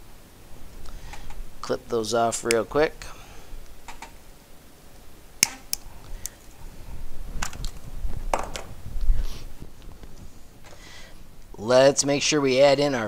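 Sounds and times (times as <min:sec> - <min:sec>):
cutters snipping zip ties: 0:05.4 - 0:06.4.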